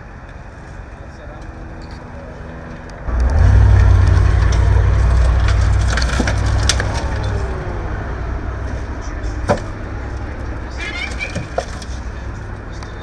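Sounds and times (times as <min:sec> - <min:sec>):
tow truck engine and hydraulics: 0:00.0 - 0:13.0
debris cracking and crunching: 0:03.1 - 0:12.2.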